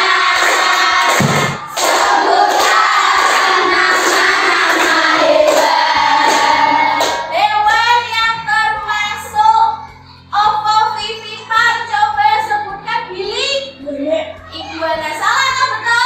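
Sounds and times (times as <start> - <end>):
children singing: 0.0 - 7.4
hands clapping: 0.2 - 7.3.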